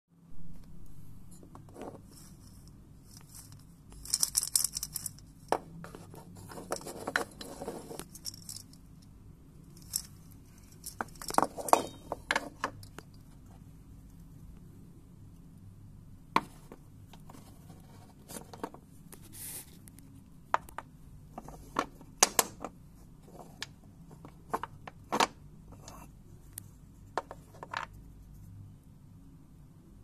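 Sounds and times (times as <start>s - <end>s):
baby maracas rattling: 3.2s - 5.2s.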